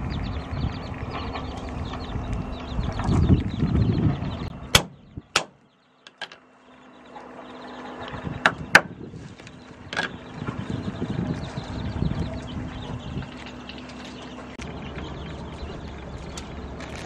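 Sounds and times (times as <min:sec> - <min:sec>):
cleaver chopping on wooden board: 0:04.8 - 0:05.6.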